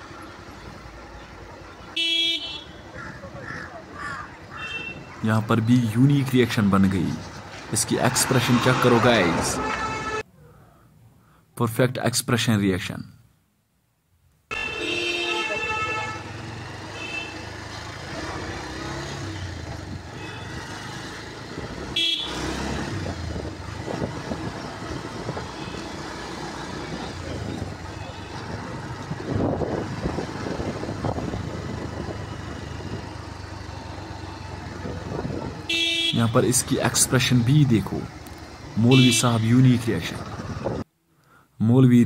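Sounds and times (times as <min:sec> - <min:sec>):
vehicle horn: 0:02.0 - 0:02.9, 0:04.5 - 0:05.1, 0:09.3 - 0:10.3, 0:14.5 - 0:17.6, 0:20.1 - 0:20.8, 0:21.9 - 0:22.8, 0:25.3 - 0:26.1, 0:27.8 - 0:28.6, 0:35.5 - 0:36.4, 0:38.9 - 0:39.4
motorcycle engine: 0:14.5 - 0:36.2.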